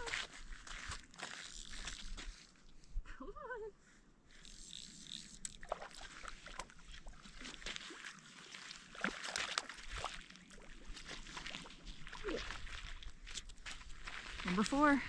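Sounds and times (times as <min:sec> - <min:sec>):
fish splashing in water: 0:05.5 - 0:13.1.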